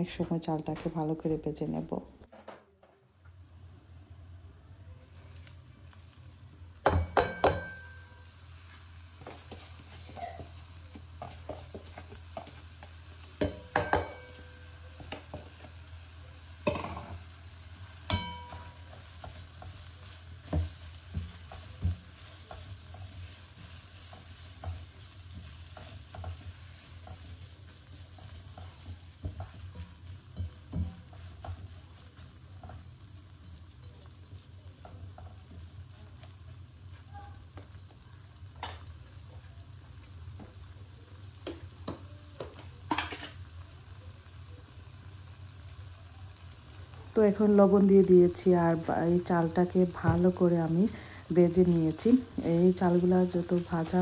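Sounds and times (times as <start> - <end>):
rice sizzling in oil: 3.0 - 54.0
spatula knocking against pan: 6.8 - 7.9, 13.4 - 14.4
spatula scraping a pan: 7.2 - 15.8, 18.1 - 33.8.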